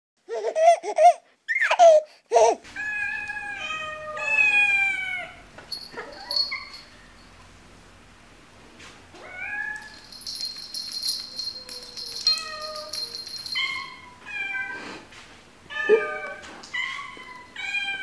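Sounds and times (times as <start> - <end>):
cats meowing: 2.8 - 6.9, 11.4 - 15.1, 15.7 - 18.0.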